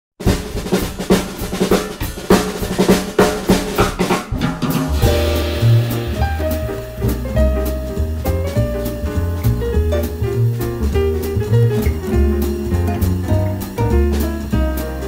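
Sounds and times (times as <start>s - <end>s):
drum kit playing: 0.2s - 15.0s
bass line: 4.7s - 15.0s
held instrument notes: 5.0s - 15.0s.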